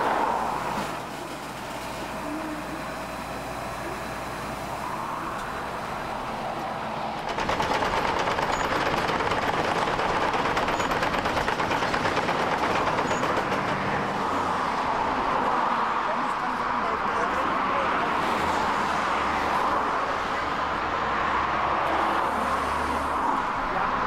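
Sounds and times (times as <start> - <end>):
milling machine engine: 0.7 - 14.2.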